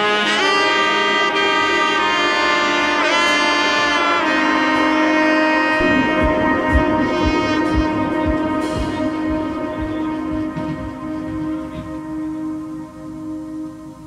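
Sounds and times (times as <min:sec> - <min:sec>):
music with long held notes: 0:00.0 - 0:14.0
low drum beat: 0:05.8 - 0:12.5.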